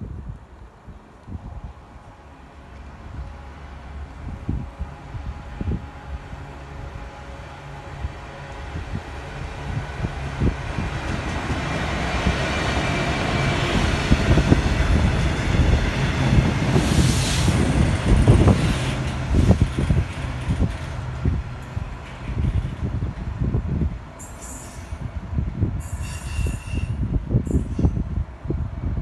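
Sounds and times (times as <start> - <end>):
diesel locomotive engine drone: 0.4 - 29.0.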